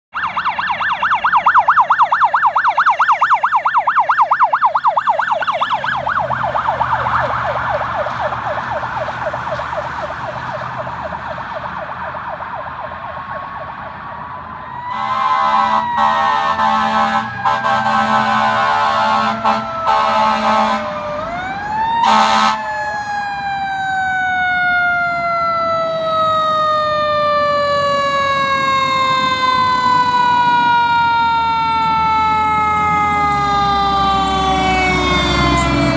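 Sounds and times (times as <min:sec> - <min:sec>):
siren wail: 0:00.1 - 0:35.9
siren yelp: 0:00.1 - 0:35.9
horn blasts: 0:14.9 - 0:21.0.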